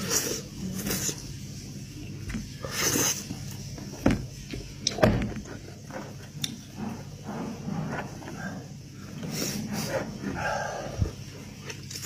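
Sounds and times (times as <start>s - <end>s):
biting and chewing meat: 4.4s - 12.0s.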